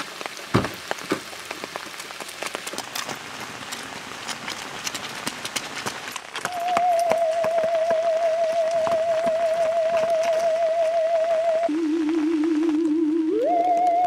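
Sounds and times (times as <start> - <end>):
rain falling: 0.0 - 14.0
loud thump: 0.5 - 1.2
wavering theremin-like tone: 6.5 - 14.0.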